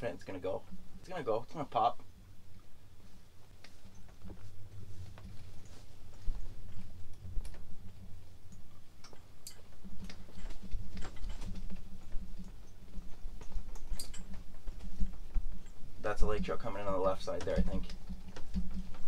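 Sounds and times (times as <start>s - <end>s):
wind buffeting a tent: 0.0s - 19.0s
sharp clicks and ticks: 8.5s - 19.0s.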